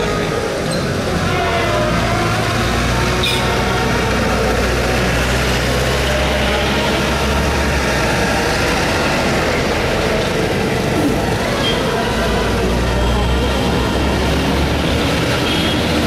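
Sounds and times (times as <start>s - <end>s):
heavy vehicle engine humming: 0.0s - 16.0s
street noise: 0.0s - 16.0s.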